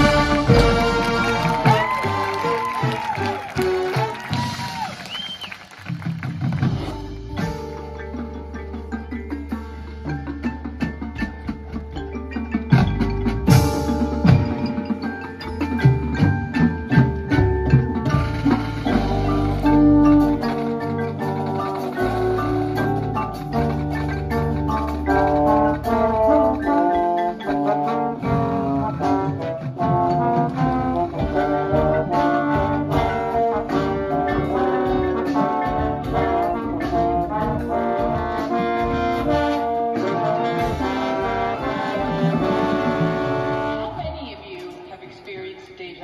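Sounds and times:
brass chords: 0:00.0 - 0:05.0, 0:18.0 - 0:45.0
mallet percussion: 0:00.0 - 0:05.0, 0:05.8 - 0:45.2
percussion beat: 0:00.0 - 0:46.0.

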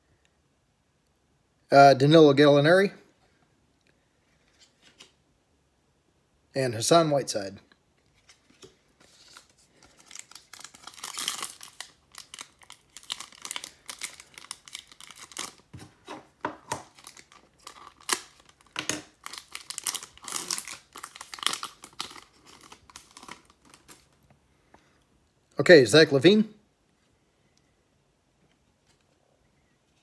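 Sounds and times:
plastic wrapper crinkling and tearing: 0:08.1 - 0:15.9, 0:16.6 - 0:24.2.

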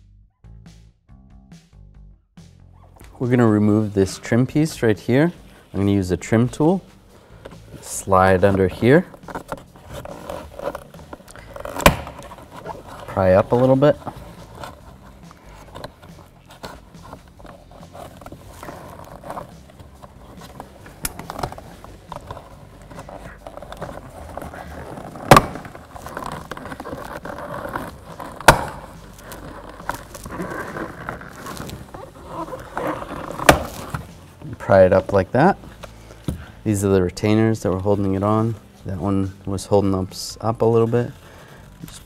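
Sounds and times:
plastic scraping and creaking: 0:07.4 - 0:39.1.

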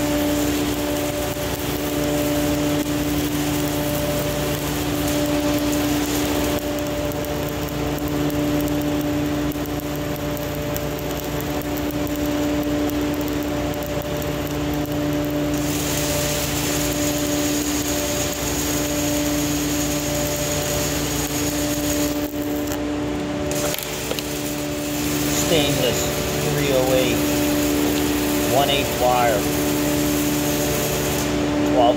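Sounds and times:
welding arc crackling: 0:00.0 - 0:31.9.

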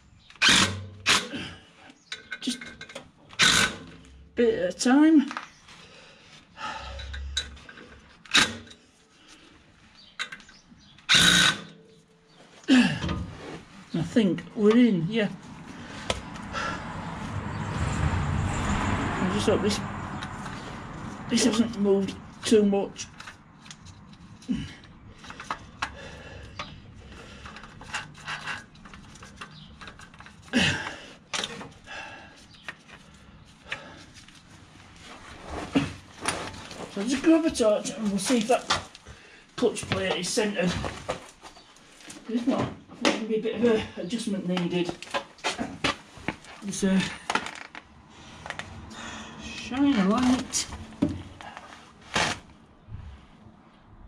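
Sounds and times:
cordless impact driver bursts: 0:03.4 - 0:03.8, 0:11.1 - 0:11.7
gloved hands clicking and scraping: 0:10.0 - 0:11.3, 0:22.3 - 0:35.0.

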